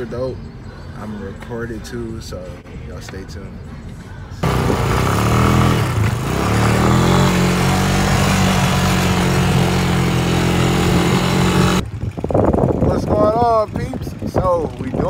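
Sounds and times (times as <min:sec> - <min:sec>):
atv engine revving: 0:04.4 - 0:15.0.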